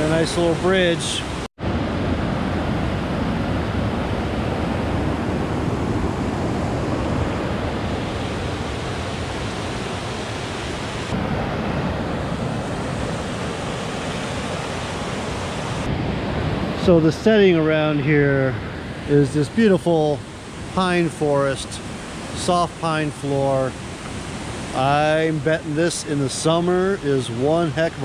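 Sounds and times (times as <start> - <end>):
river rushing over waterfalls: 0.0 - 17.1, 18.6 - 28.0.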